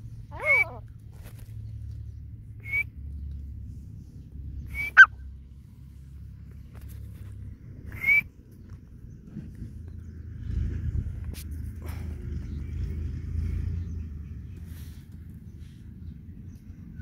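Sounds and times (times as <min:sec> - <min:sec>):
steady low rumble: 0:00.0 - 0:17.0
bird high call notes: 0:00.3 - 0:00.8, 0:04.7 - 0:05.2.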